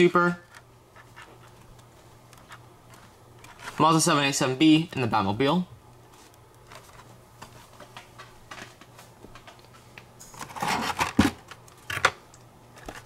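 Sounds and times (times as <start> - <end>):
toy packaging rustling and clacking: 10.3 - 12.2.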